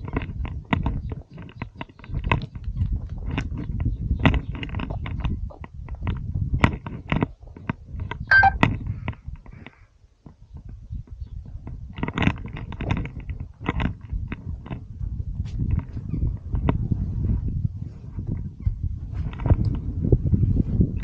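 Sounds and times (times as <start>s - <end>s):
short whistle-like tone: 8.3s - 8.6s.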